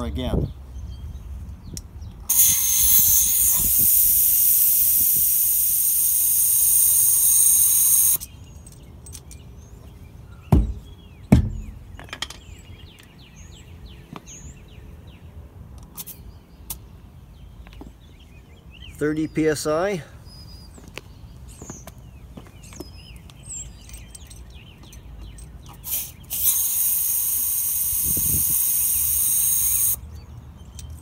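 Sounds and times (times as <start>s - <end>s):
air hissing from tyre valve: 2.3s - 8.3s, 25.8s - 30.0s
hammer striking tyre: 10.5s - 11.8s.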